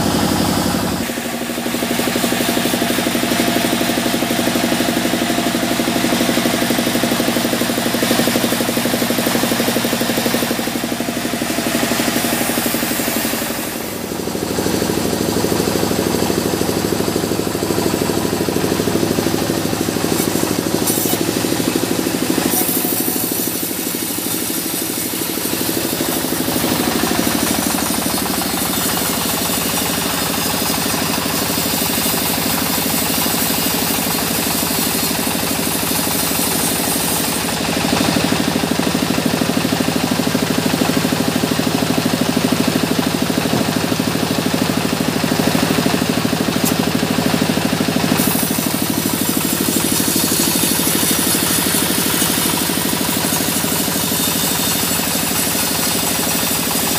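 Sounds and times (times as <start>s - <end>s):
band saw blade cutting log: 0.0s - 56.9s
sawmill drive humming: 0.0s - 56.9s.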